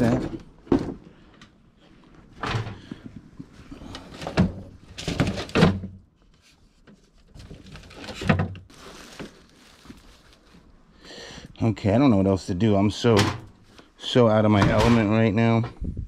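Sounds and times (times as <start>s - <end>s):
junk thudding and scraping: 14.5s - 16.0s.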